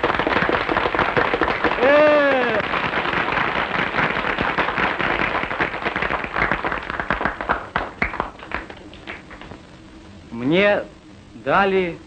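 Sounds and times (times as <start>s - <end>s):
crowd applauding: 0.0s - 9.5s.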